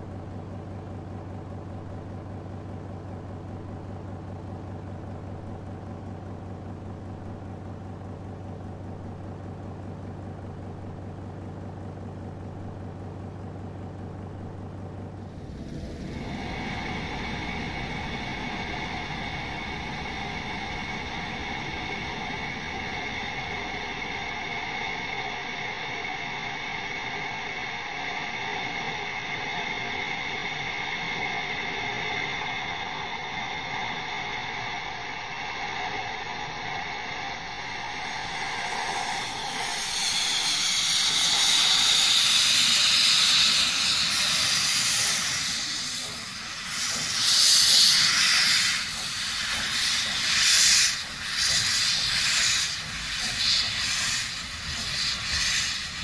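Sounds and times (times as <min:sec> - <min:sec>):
mechanical hum: 0:00.0 - 0:56.0
steam locomotive blowing off steam: 0:15.2 - 0:56.0.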